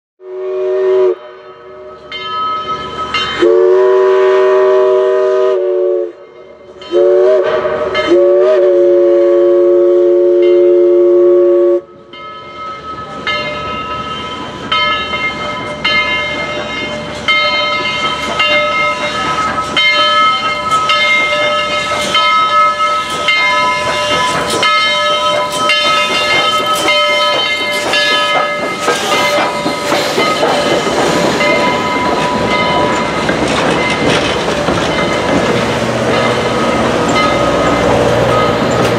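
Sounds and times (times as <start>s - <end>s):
steam locomotive whistle: 0.2s - 2.0s, 3.4s - 12.0s
train running noise: 0.4s - 38.9s
locomotive bell ringing: 1.3s - 4.6s, 6.1s - 8.8s, 10.3s - 38.9s.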